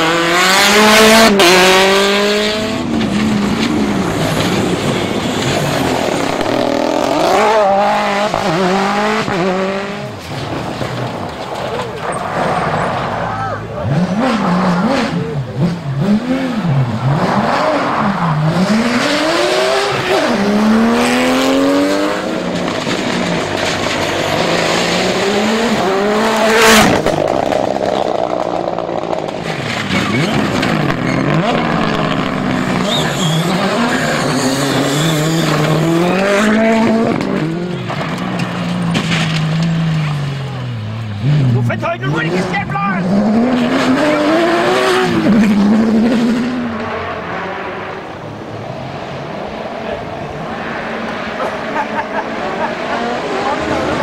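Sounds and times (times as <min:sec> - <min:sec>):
rally car engines revving: 0:00.0 - 0:54.0.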